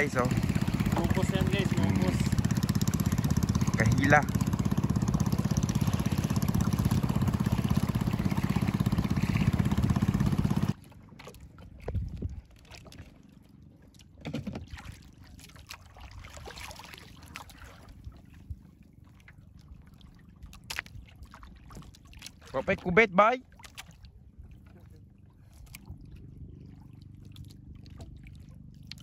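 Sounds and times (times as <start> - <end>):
boat engine running: 0.0 - 15.3, 17.7 - 29.0
small water splashes: 0.0 - 29.0
water lapping: 0.0 - 29.0.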